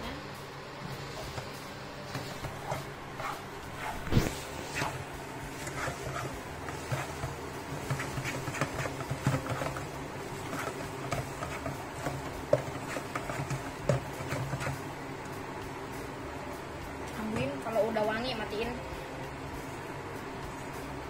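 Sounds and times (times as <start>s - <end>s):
spatula scraping frying pan: 2.1s - 14.8s
spatula knocking on pan: 5.7s - 14.8s.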